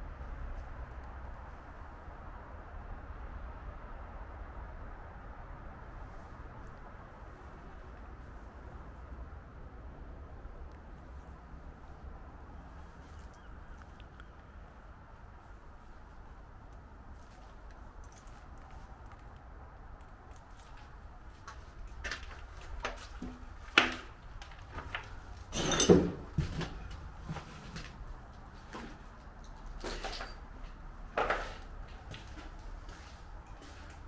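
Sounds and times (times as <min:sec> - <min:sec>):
footsteps on debris: 0:20.3 - 0:34.0.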